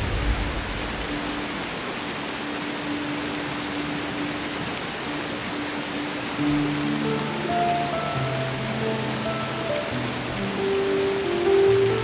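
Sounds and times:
deep bass note: 0.0s - 1.1s
whitewater pouring down waterfall: 0.0s - 12.0s.

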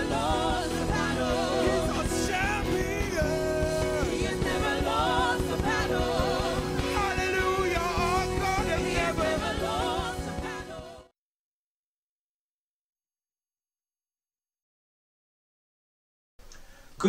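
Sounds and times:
singers vocalising: 0.0s - 11.1s
worship band playing: 0.0s - 11.1s.

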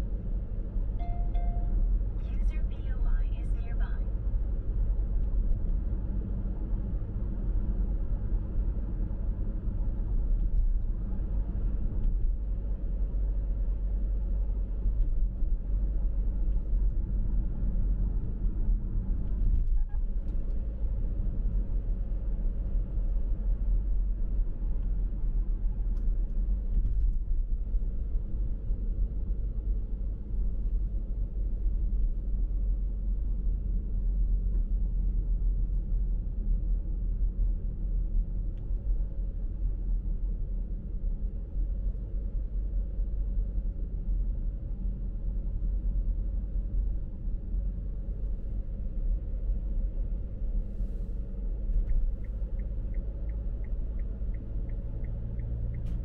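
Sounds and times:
car road and engine rumble: 0.0s - 56.0s.

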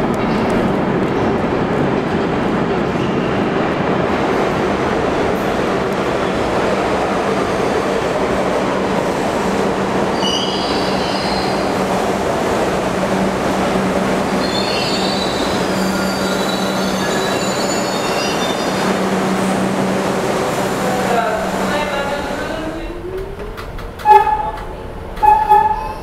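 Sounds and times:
subway train rumbling to a stop: 0.0s - 26.0s
high-pitched wheel squeals: 14.4s - 18.8s, 25.2s - 26.0s.

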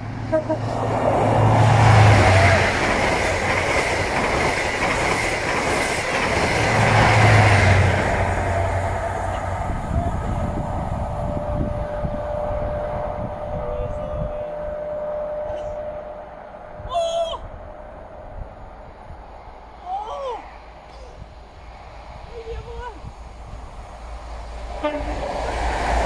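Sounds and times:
train coaches rumbling past: 0.0s - 19.8s, 20.4s - 26.0s
diesel locomotive engine: 0.0s - 26.0s
wheels clicking over rail joints: 2.1s - 10.6s.

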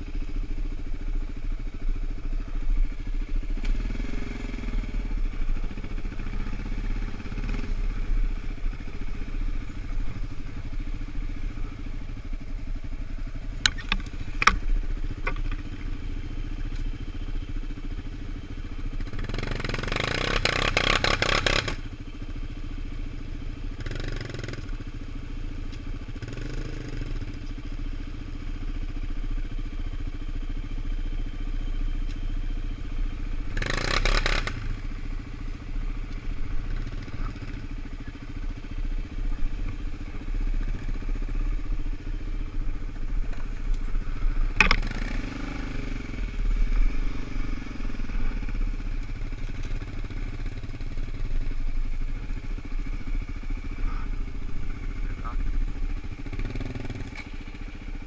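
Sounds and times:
quad engines running at low revs: 0.0s - 58.0s.

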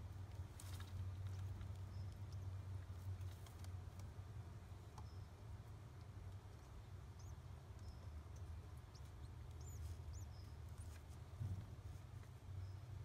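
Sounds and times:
pigeon chick squeaking: 6.5s - 10.8s.

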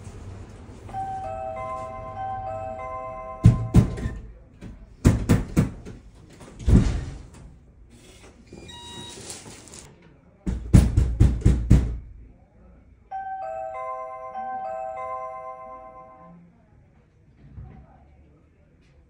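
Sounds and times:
knocking on a door: 3.4s - 6.0s, 10.4s - 12.1s.

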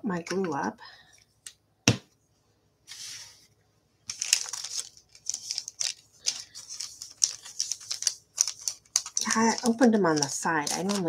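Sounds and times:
paper sheet crackling: 4.1s - 11.0s.

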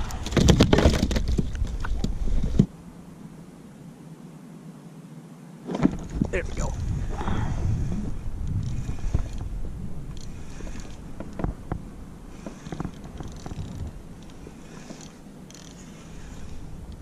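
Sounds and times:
fishing reel whirring: 6.6s - 11.2s, 12.3s - 17.0s
small reel clicks: 8.4s - 9.5s, 10.1s - 11.5s, 12.4s - 17.0s.

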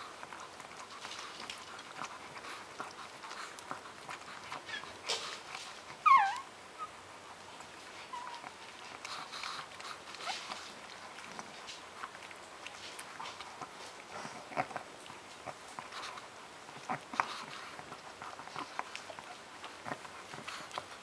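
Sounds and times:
soft clicks and rustles of nursing: 0.0s - 6.4s, 7.4s - 21.0s
faint puppy squeaks: 4.6s - 5.0s, 6.0s - 7.0s, 8.0s - 8.6s
puppy squealing: 6.0s - 6.9s, 8.1s - 8.6s.

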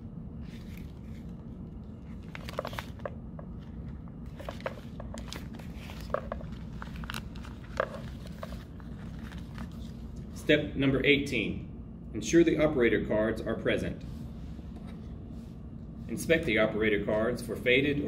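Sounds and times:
steady low hum: 0.0s - 18.0s
plastic bag crinkling: 2.0s - 3.2s, 4.3s - 10.0s.

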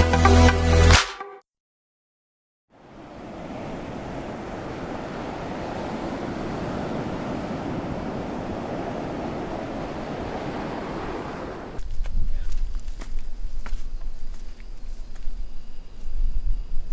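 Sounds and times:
wind: 2.7s - 16.9s
sea surf: 2.8s - 11.8s.

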